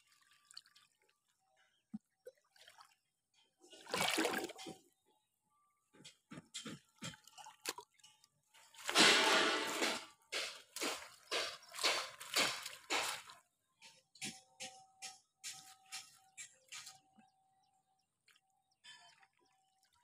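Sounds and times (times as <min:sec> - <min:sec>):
small splashes: 0:02.0 - 0:03.1, 0:03.7 - 0:04.8, 0:07.0 - 0:08.0, 0:08.6 - 0:13.4
net splashing into water: 0:03.8 - 0:04.7, 0:08.8 - 0:13.3.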